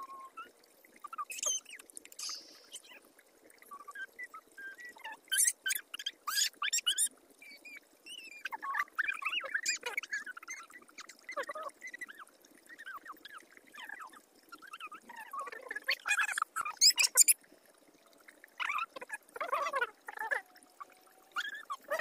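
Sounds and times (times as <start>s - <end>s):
animal chirping calls: 15.9s - 17.4s.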